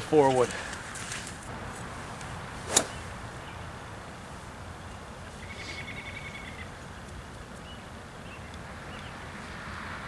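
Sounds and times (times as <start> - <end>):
bird trill: 5.4 - 6.8.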